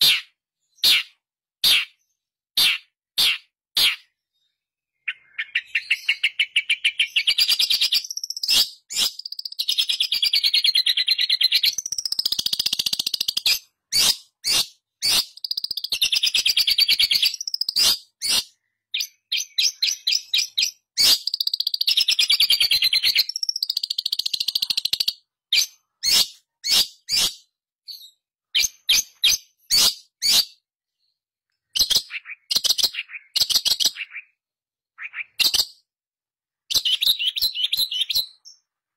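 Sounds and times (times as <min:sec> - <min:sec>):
shrike buzzy chattering song: 0:05.0 - 0:27.5, 0:31.6 - 0:35.9.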